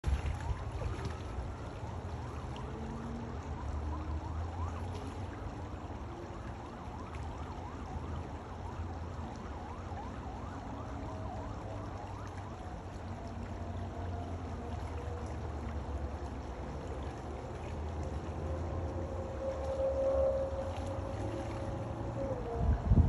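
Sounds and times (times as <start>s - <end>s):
creek water over gravel: 0.0s - 23.0s
low steady rumble: 0.0s - 23.0s
whistle-like rising and falling glides: 18.4s - 23.0s.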